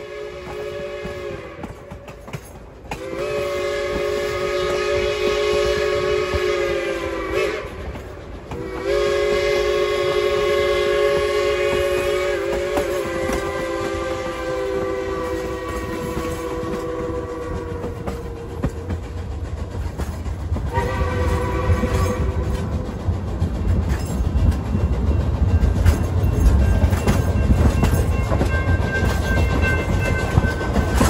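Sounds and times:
steam whistle chord blasts: 0:00.0 - 0:02.0, 0:02.9 - 0:18.9, 0:20.7 - 0:22.8
train running rumble: 0:00.0 - 0:31.0.

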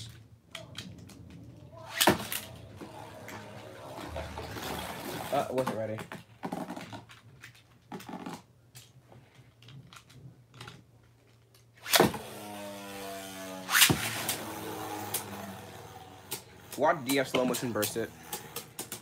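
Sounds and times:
spinning top whirring: 0:01.0 - 0:05.6, 0:11.8 - 0:19.0
launcher snap: 0:11.8 - 0:12.6, 0:13.7 - 0:15.6.

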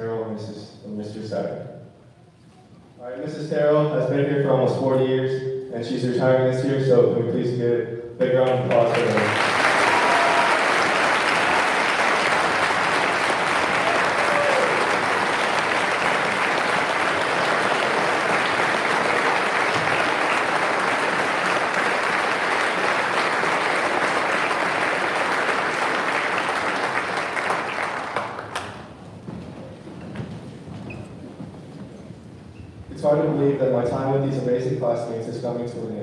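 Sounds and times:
audience applause: 0:08.4 - 0:29.2.

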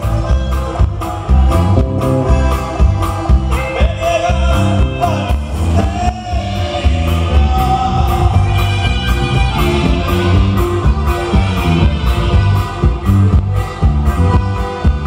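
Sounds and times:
button accordion: 0:00.0 - 0:03.7, 0:08.3 - 0:15.0
man singing: 0:00.0 - 0:10.4
bajo sexto strumming: 0:00.0 - 0:15.0
drums keeping a steady beat: 0:00.0 - 0:15.0
electric bass: 0:00.0 - 0:15.0
saxophone: 0:06.7 - 0:15.0.

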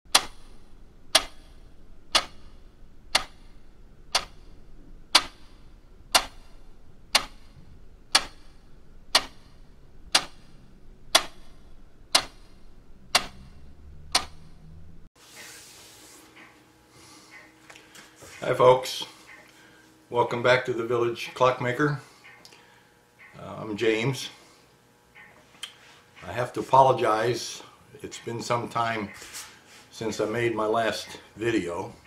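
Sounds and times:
clock ticking: 0:00.1 - 0:14.8.

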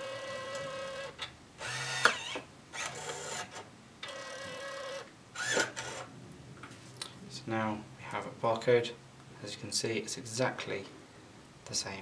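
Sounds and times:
label printer motor whirring: 0:00.0 - 0:06.0.

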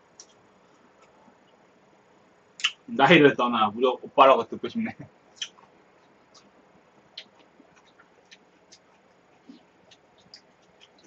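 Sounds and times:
small clicks of people eating: 0:00.1 - 0:01.6, 0:05.4 - 0:06.5, 0:07.1 - 0:11.0.

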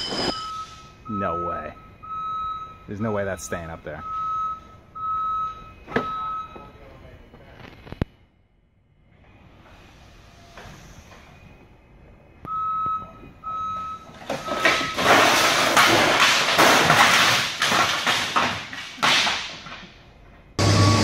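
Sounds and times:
forklift warning alarm beeps: 0:00.0 - 0:07.4, 0:10.8 - 0:15.3, 0:20.5 - 0:21.0
wooden pallets crashing to floor: 0:14.0 - 0:20.1.

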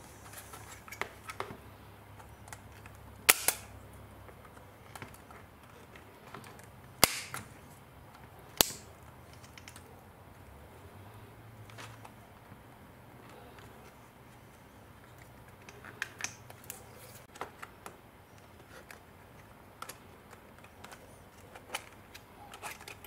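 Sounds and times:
plastic casing clips snapping: 0:03.3 - 0:03.7, 0:07.0 - 0:07.5, 0:08.5 - 0:09.8.

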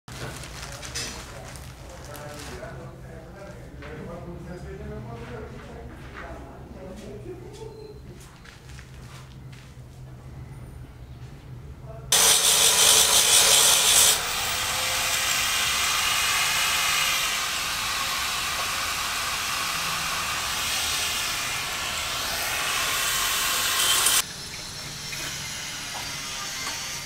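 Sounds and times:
power tool sanding metal: 0:12.1 - 0:27.0.

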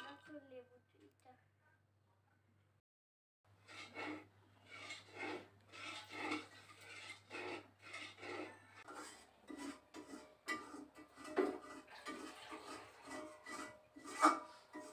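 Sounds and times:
peanuts rubbing rasp: 0:03.6 - 0:14.9.

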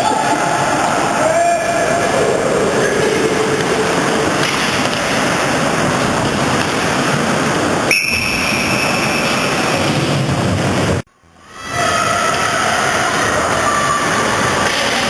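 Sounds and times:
ice rink noise: 0:00.0 - 0:15.0
referee's whistle: 0:07.9 - 0:09.3.

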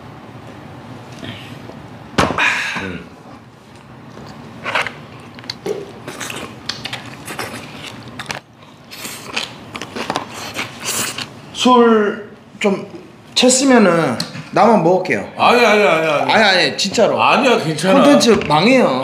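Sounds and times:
chewing: 0:05.1 - 0:11.4
person exclaiming: 0:17.9 - 0:18.4.

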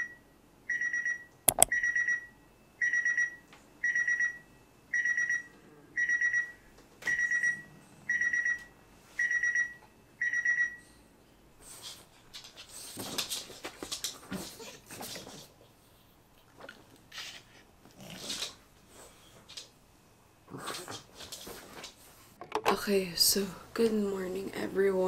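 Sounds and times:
electronic alarm beeping: 0:00.7 - 0:06.5, 0:09.2 - 0:10.8
sharp click: 0:01.5 - 0:01.7.

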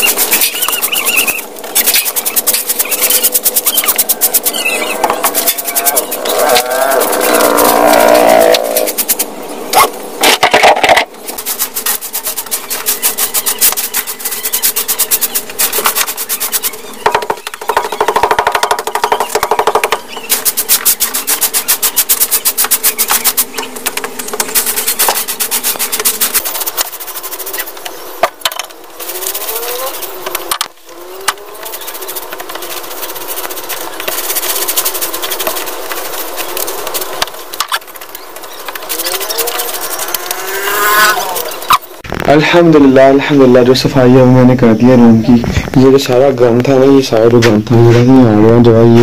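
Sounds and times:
broom sweeping dirt floor: 0:00.0 - 0:17.0, 0:20.1 - 0:42.0
steady hum: 0:00.0 - 0:49.0.

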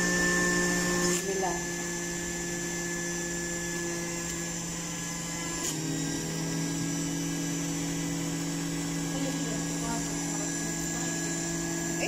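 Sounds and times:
juicer click: 0:00.0 - 0:01.4, 0:05.4 - 0:09.1
juicer motor whining: 0:00.0 - 0:12.0.

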